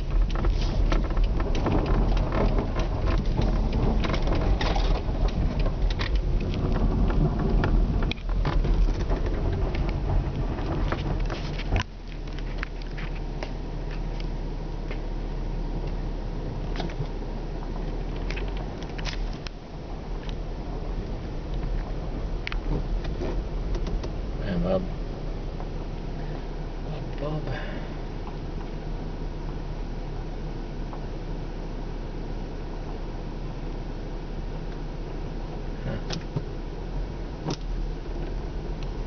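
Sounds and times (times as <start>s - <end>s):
sharp clicks and crackles: 0.0s - 14.3s, 16.6s - 24.3s, 37.4s - 39.0s
car engine and tyres rumbling: 0.0s - 39.0s.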